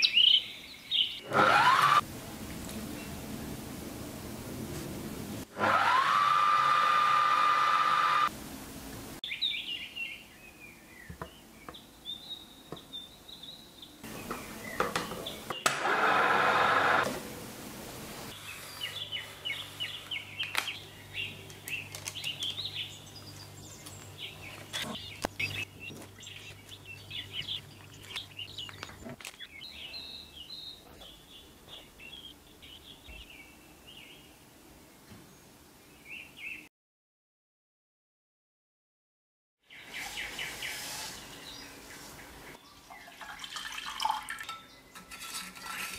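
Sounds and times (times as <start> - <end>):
birds chirping: 0.0 - 1.3, 9.2 - 15.7, 18.3 - 36.7, 39.7 - 45.7
food processor motor whine: 1.2 - 2.0, 5.5 - 8.3, 15.6 - 17.1.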